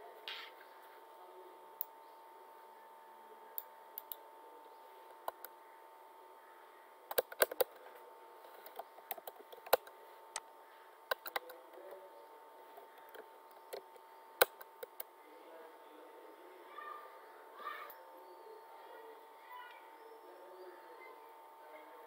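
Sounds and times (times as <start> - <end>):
faint steady hum: 0.0 - 22.0
keyboard keys clicking: 7.1 - 7.8, 8.6 - 9.9, 11.1 - 11.6.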